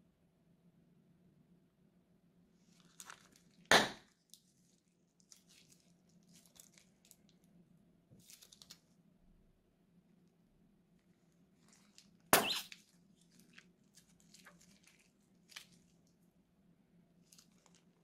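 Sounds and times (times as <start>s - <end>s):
plastic rustles: 2.6s - 7.5s, 8.2s - 9.0s, 11.0s - 16.2s, 17.2s - 18.0s
plastic bag crinkling: 2.7s - 3.7s, 4.3s - 7.4s, 11.6s - 16.1s, 17.2s - 18.0s
plastic ripping: 2.7s - 4.4s, 5.2s - 7.3s, 11.6s - 15.9s.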